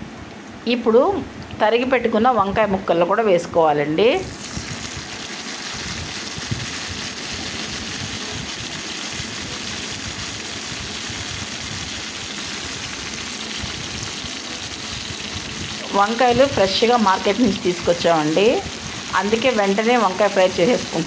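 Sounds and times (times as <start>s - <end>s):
oil sizzling with frying vegetables: 4.2s - 21.0s.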